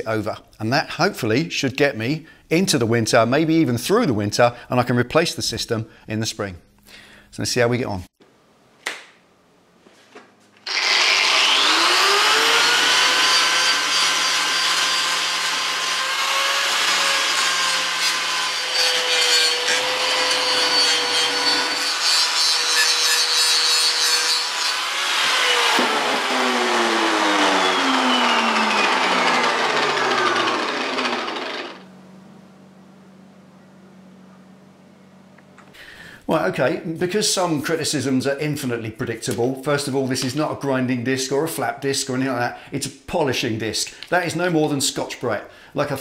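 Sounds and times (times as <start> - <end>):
angle grinder whining: 10.6 - 31.9.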